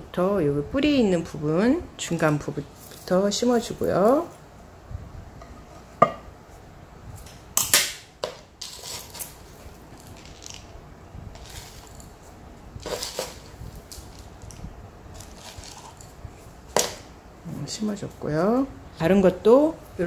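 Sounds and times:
hands rustling in potting mix: 11.3 - 16.8.

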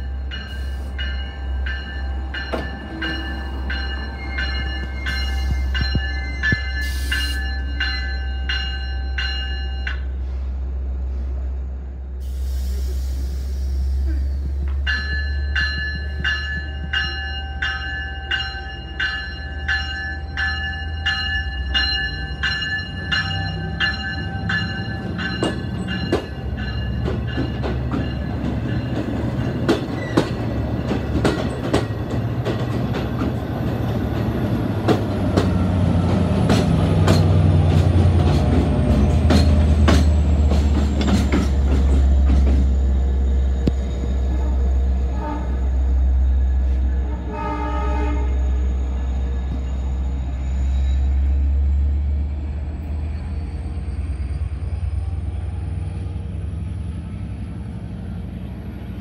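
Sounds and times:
bell ringing: 0.0 - 10.1, 14.8 - 29.7
train wheels clicking on rail joints: 0.0 - 10.2, 12.3 - 44.2
diesel locomotive rumble: 0.0 - 59.0.

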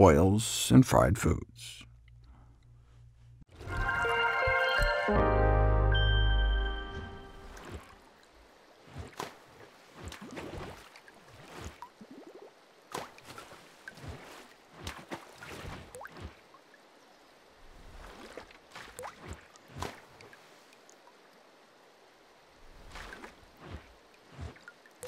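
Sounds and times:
water splashing and dripping: 7.2 - 17.0, 17.6 - 21.4, 22.6 - 25.0.

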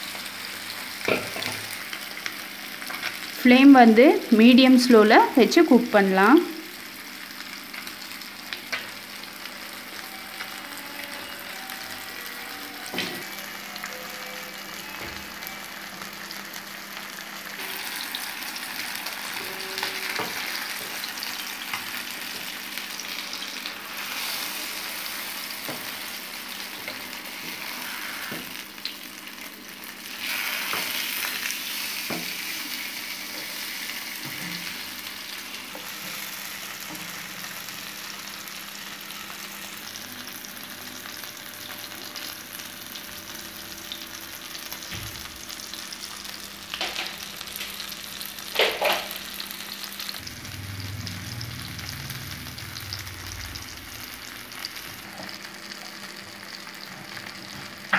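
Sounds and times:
fish sizzling in oil: 0.0 - 57.9.

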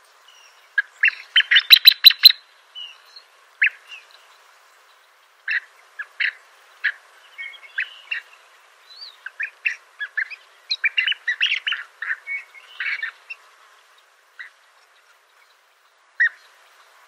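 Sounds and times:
birds chirping: 0.2 - 16.9
bird whistled notes: 1.4 - 2.4.

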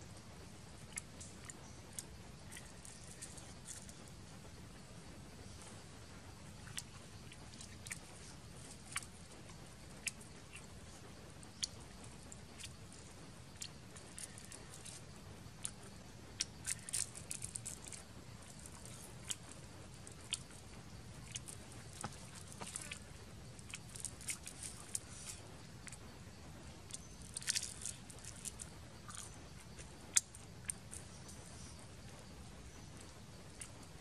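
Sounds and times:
person chewing crunchy food: 15.6 - 26.0, 26.9 - 30.8.

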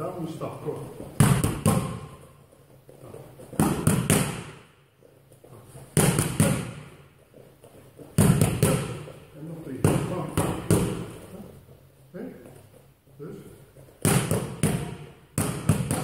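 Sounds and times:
punches slapping focus mitts: 1.2 - 2.2, 3.5 - 4.7, 5.9 - 7.0, 8.2 - 9.1, 9.8 - 11.2, 14.0 - 16.0.

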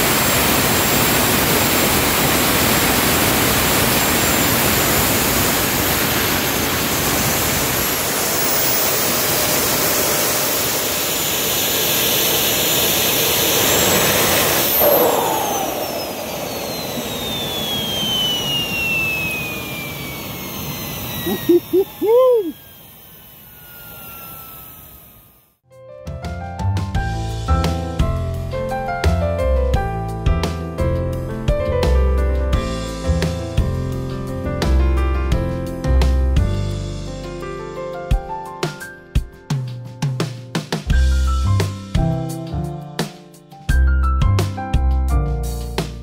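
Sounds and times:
jet engine rushing: 0.0 - 25.5
turbine whine: 0.0 - 25.6.

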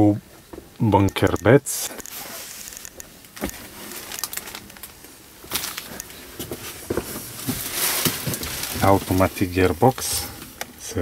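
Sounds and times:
handling and rustling noises: 2.0 - 10.8
plastic wrapping crinkle: 2.1 - 6.2, 7.2 - 10.1.

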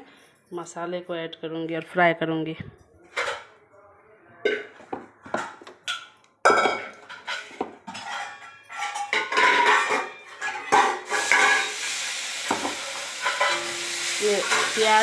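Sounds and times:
metal pots and utensils clinking: 3.1 - 3.6, 4.4 - 15.0
sizzling in hot oil: 11.0 - 15.0.

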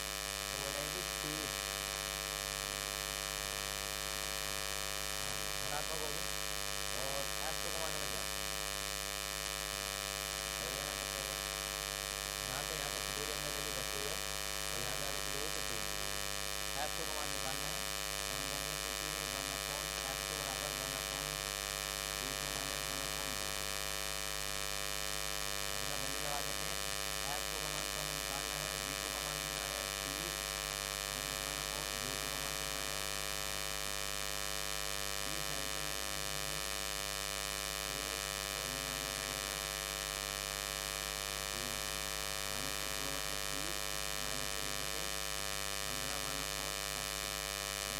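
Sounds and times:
electrical hum and buzz: 0.0 - 47.9.

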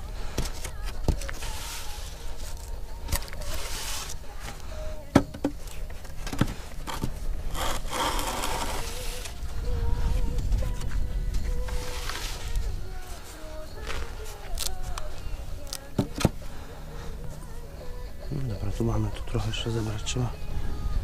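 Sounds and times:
board scraping across sand: 6.9 - 12.7.

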